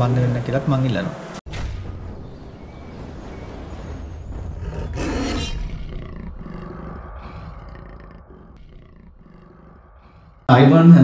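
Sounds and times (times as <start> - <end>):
deep rumble: 1.5 - 10.5
loud animal roar: 4.5 - 10.5.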